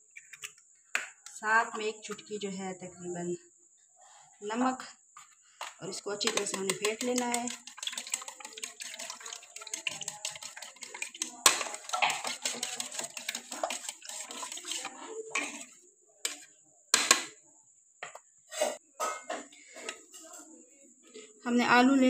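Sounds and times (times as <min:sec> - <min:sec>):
egg beaten with metal utensil: 0:06.2 - 0:16.5.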